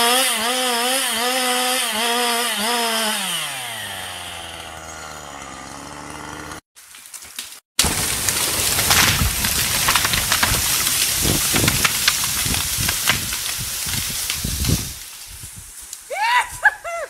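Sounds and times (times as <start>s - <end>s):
chainsaw idling: 0.0s - 6.6s
branches breaking and snapping: 4.6s - 16.1s
tree crashing down: 4.7s - 15.4s.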